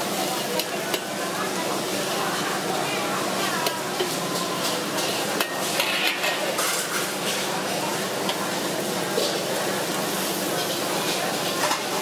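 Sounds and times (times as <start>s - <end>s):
food sizzling in hot oil: 0.0s - 12.0s
metal spatula scraping wok: 4.0s - 7.5s.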